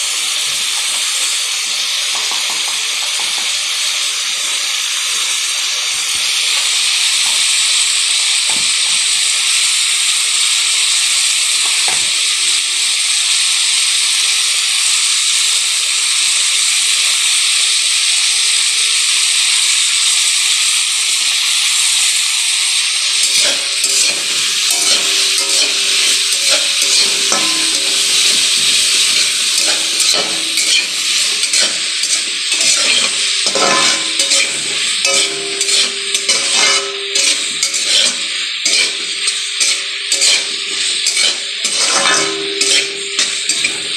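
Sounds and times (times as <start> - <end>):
vegetables sizzling in oil: 0.0 - 43.9
stirring scraping against wok: 23.2 - 43.9.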